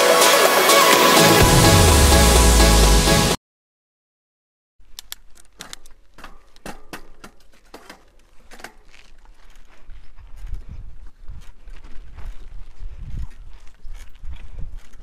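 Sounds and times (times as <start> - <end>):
music: 0.0 - 3.4
bicycle rattling over dirt track: 5.2 - 15.0.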